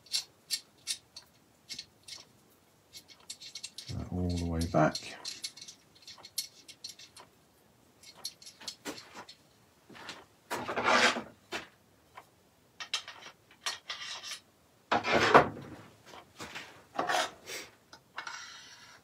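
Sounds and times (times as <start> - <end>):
metal scraping rubs: 2.9 - 7.3, 10.1 - 11.3, 16.9 - 17.4.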